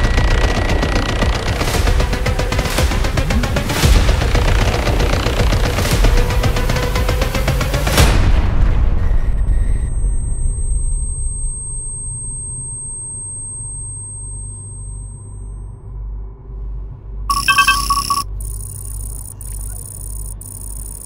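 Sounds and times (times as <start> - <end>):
electronic beeping chime: 17.3 - 21.0
stuttering computer-like chatter: 17.3 - 21.0.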